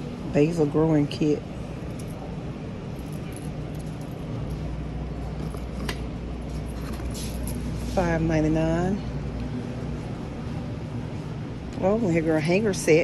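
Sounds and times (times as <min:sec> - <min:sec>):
steady low hum: 0:00.0 - 0:13.0
keys jangling: 0:01.8 - 0:02.3, 0:02.9 - 0:04.7, 0:05.4 - 0:05.9, 0:06.5 - 0:07.7.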